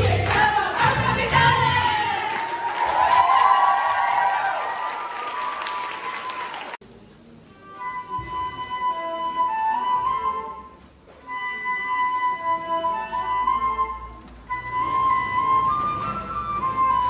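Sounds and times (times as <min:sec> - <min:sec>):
crowd cheering and clapping: 0:00.0 - 0:06.8
flute: 0:07.6 - 0:17.0.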